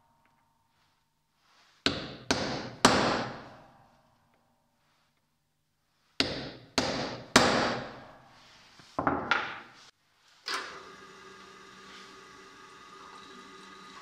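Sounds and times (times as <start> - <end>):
hammer striking metal punch: 6.2 - 8.1
drill press motor hum: 10.5 - 14.0.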